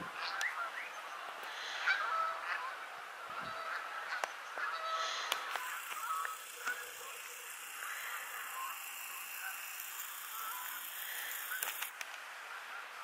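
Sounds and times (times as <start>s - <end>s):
steady background hiss: 0.0s - 13.0s
geese honking: 1.6s - 11.9s
sharp clicks: 5.2s - 12.2s.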